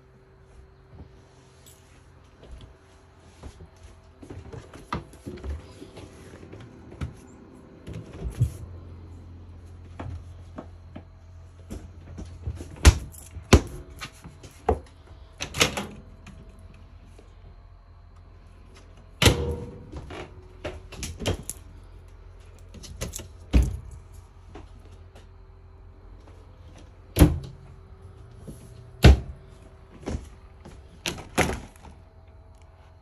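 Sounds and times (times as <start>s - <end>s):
low steady hum: 0.0s - 33.0s
doors opening and shutting: 4.4s - 17.0s, 18.7s - 21.9s, 22.6s - 24.7s, 26.6s - 32.6s.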